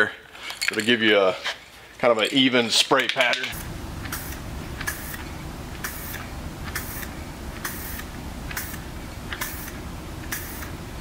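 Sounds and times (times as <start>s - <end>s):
low background rumble: 3.6s - 11.0s
aerosol spray bursts: 4.1s - 10.8s.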